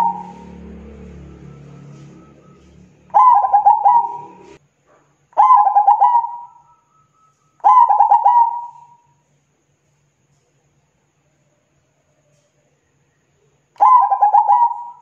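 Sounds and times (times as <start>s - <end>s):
dove cooing: 0.0s - 4.6s, 5.4s - 6.6s, 7.6s - 9.0s, 13.8s - 15.0s.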